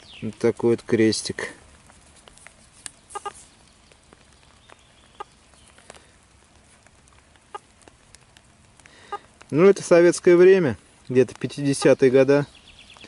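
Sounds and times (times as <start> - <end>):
bird clucking calls: 2.9 - 3.6, 4.7 - 5.5, 7.4 - 7.7.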